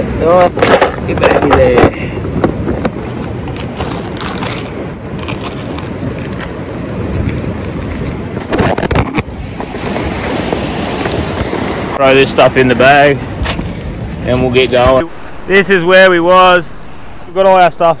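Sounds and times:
wind rumble on microphone: 0.0 - 18.0
plastic bags crinkling: 3.6 - 5.9.

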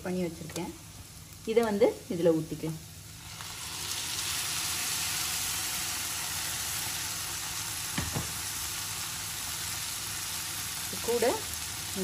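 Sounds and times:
tomato puree sizzling in hot oil: 0.0 - 12.0
knock: 8.0 - 8.3.

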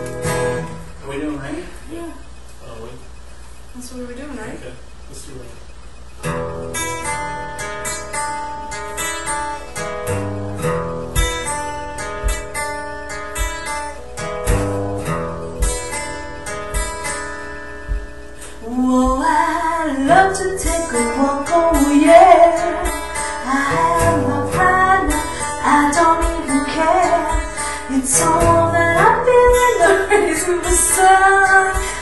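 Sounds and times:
acoustic guitar strumming: 0.0 - 5.0, 5.7 - 32.0
person singing: 18.6 - 32.0.

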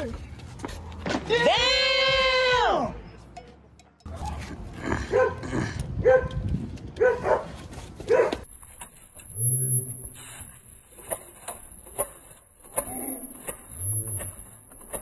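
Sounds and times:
dog barking: 5.1 - 5.4, 6.0 - 6.4, 7.0 - 8.4.

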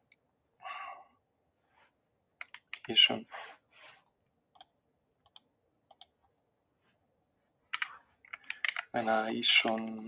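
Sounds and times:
computer mouse clicks: 2.4 - 2.9, 4.5 - 6.2, 7.7 - 8.9
keyboard typing: 2.4 - 2.9, 4.5 - 6.2, 7.7 - 8.9.

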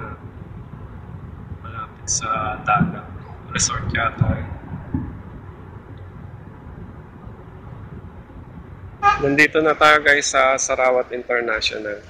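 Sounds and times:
road and engine noise in car: 0.0 - 12.0.

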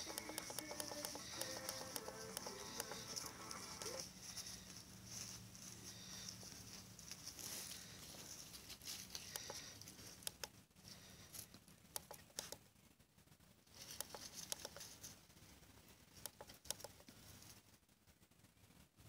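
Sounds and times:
faint radio hiss: 0.0 - 19.0.

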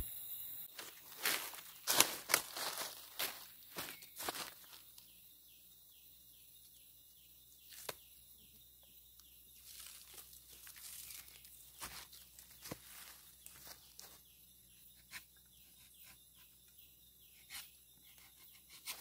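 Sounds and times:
footsteps crunching on dry leaves: 0.7 - 4.9, 9.6 - 14.3
knife scraping tree bark: 17.3 - 19.0.

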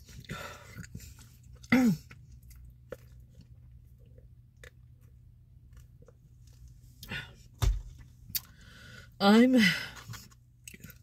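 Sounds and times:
chewing and sipping: 0.0 - 6.7
dull thump: 7.6 - 8.0.

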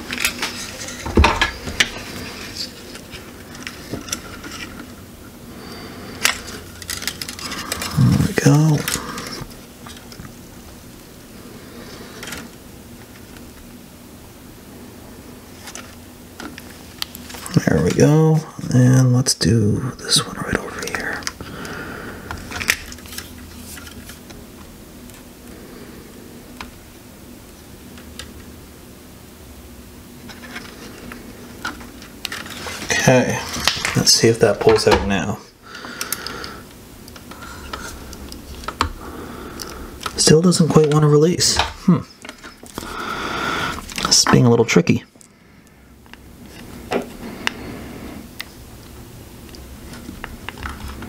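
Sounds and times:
faint steady hum: 0.0 - 51.0
solder crackling and clicking: 35.9 - 39.0.

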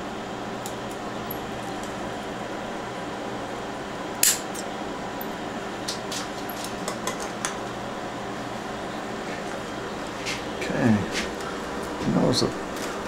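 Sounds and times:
steady background hum: 0.0 - 13.0.

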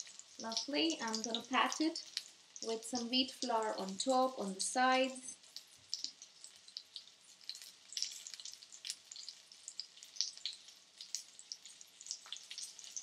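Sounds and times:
oil sizzling with crackles: 0.0 - 13.0.

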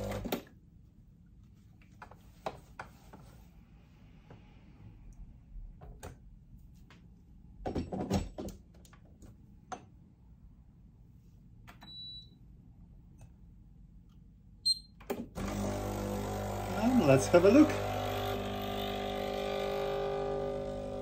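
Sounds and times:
short electronic beep: 11.8 - 12.4.

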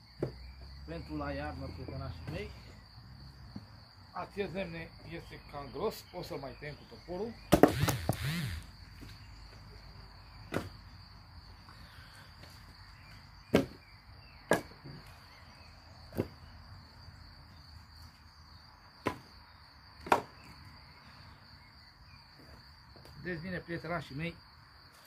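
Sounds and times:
insects chirring: 0.0 - 25.0
firewood knocking: 20.0 - 20.4.

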